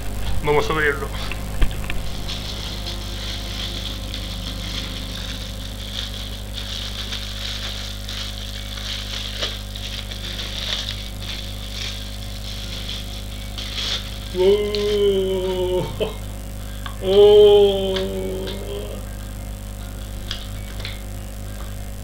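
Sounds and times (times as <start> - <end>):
low electrical hum: 0.0 - 22.0
plastic bag crinkling: 1.4 - 14.9.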